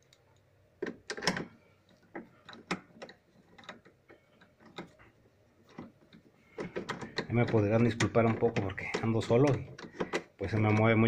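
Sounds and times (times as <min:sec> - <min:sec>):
screwdriver clicking on parts: 0:05.7 - 0:11.0.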